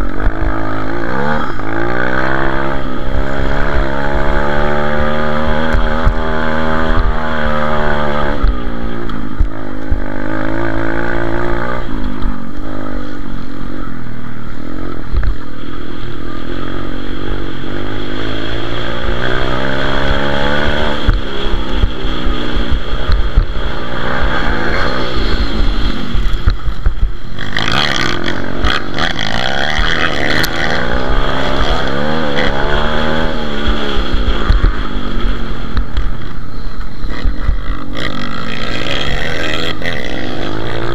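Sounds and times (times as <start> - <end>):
rushing noise: 0.0 - 40.9
small motorbike engine revving: 27.3 - 35.8.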